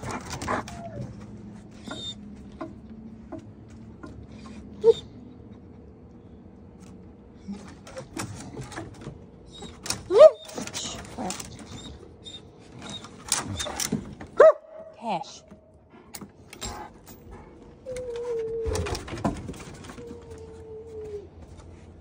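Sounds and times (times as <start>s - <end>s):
dog paws tapping on wooden deck: 0.0s - 4.3s, 6.8s - 14.6s, 15.4s - 22.0s
dog whimper: 0.5s - 2.3s, 4.3s - 5.2s, 9.5s - 13.8s.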